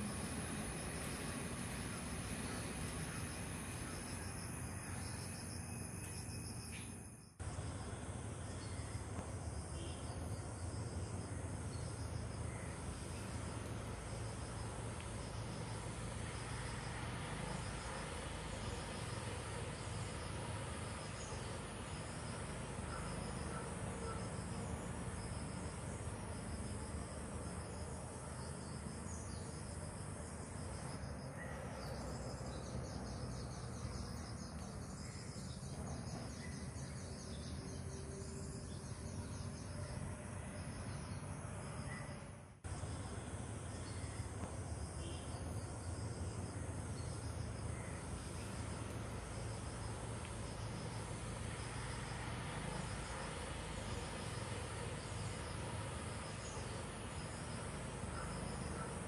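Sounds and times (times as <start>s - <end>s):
insect trill: 0.0s - 59.0s
insects chirping: 0.0s - 59.0s.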